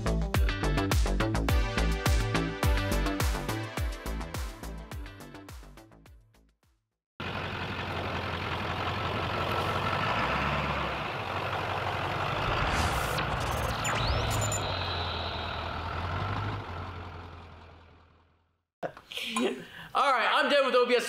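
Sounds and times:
pickup truck engine driving: 7.2s - 18.5s
rising whoosh: 12.3s - 15.6s.

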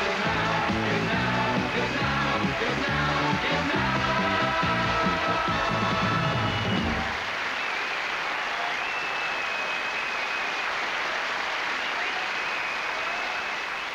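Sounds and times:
band playing: 0.0s - 7.2s
audience applauding: 0.0s - 13.9s.

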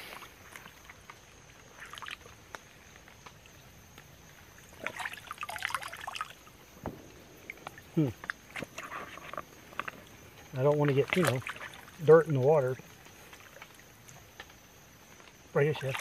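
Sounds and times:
creek water splashing: 0.0s - 16.0s
water dribbling from spout: 4.6s - 6.5s, 7.6s - 14.4s.

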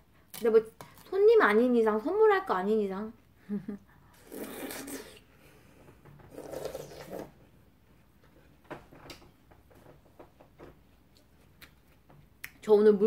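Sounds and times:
bites into crisp watermelon: 4.2s - 5.2s, 6.3s - 7.4s.

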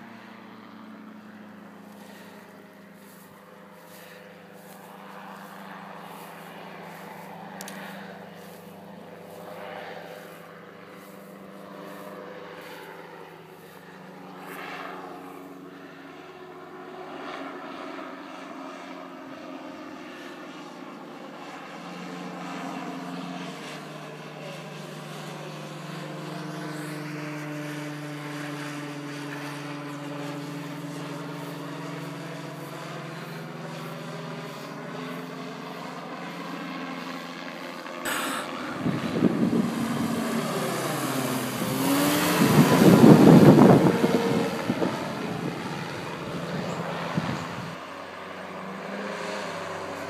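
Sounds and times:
microlight engine and propeller drone: 0.0s - 50.0s.

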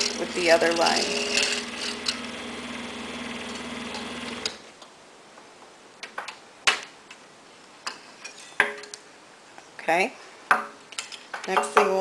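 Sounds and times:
scroll saw humming: 0.0s - 4.6s.

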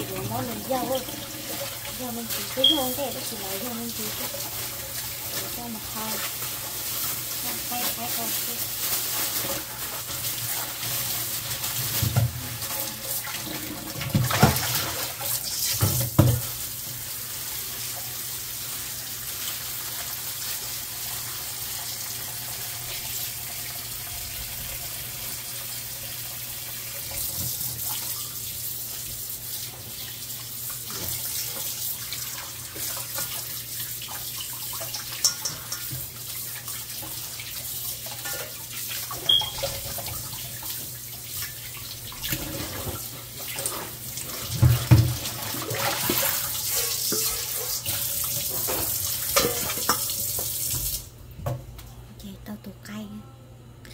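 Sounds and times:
hands rinsing meat in water: 0.0s - 23.2s, 26.6s - 51.0s
tap running into metal bowl: 15.7s - 16.6s, 44.5s - 51.6s.

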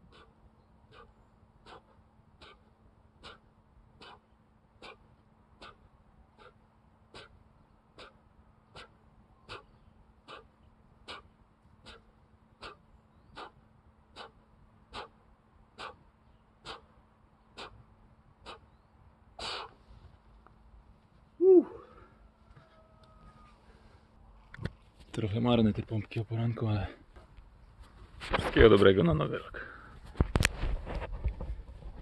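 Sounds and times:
man breathing out hard: 0.9s - 7.4s, 15.8s - 17.0s, 19.4s - 19.8s, 21.4s - 22.2s.

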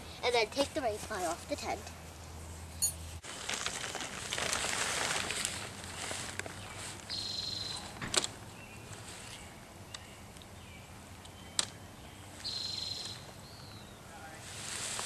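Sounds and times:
nylon tent fabric rustling: 3.2s - 7.2s, 14.4s - 15.0s.

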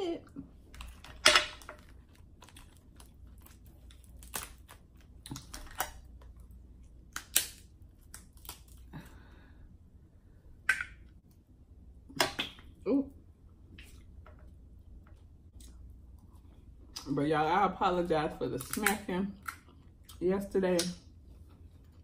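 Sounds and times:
crab shells cracking: 0.7s - 9.0s, 18.6s - 19.8s.

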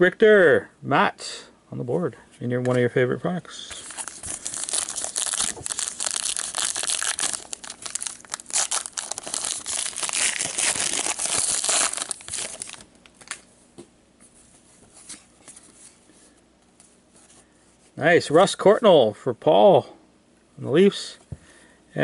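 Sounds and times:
cards rustling: 3.6s - 13.4s
card pack wrapper crinkling: 3.7s - 13.5s.

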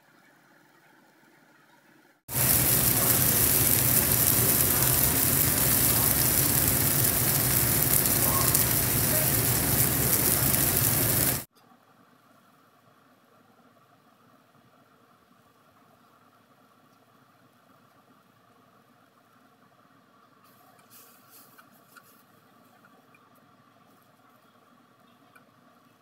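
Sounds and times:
vegetables sizzling in oil: 2.3s - 11.5s.

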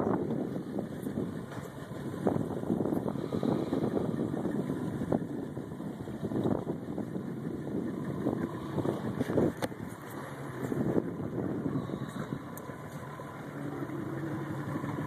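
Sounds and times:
boat engine running: 0.0s - 15.0s
wind buffeting microphone: 0.0s - 15.0s.

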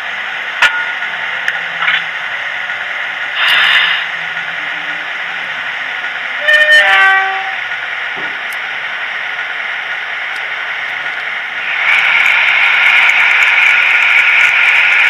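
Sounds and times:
model train motor whirring: 10.3s - 15.0s.

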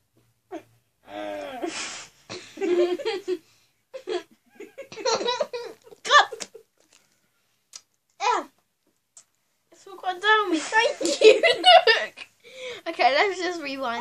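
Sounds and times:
girls laughing: 2.4s - 3.4s, 4.0s - 6.7s, 10.9s - 12.3s.

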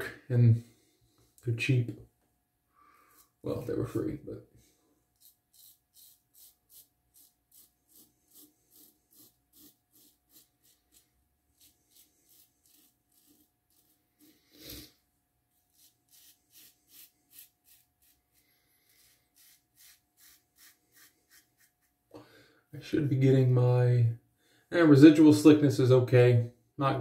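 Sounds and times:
razor scraping stubble: 5.2s - 14.9s, 15.6s - 18.3s, 18.9s - 21.9s.

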